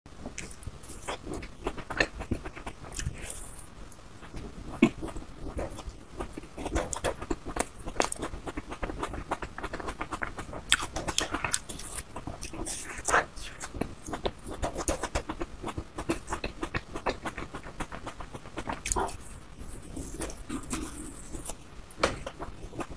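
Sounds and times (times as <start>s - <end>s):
chewing frozen ice cream bar: 4.3s - 21.6s.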